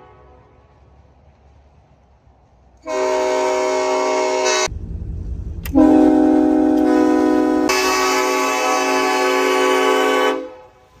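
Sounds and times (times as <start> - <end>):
air horn chord blasts: 2.8 - 4.7, 5.7 - 10.7
low rumble: 4.6 - 8.0.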